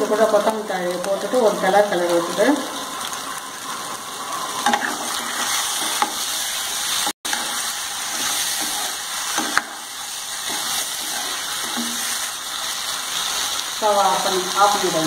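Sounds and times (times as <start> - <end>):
food sizzling in a pan: 0.0 - 15.0
ladle scraping and knocking on pan: 4.6 - 6.3, 7.3 - 9.8, 10.4 - 12.2.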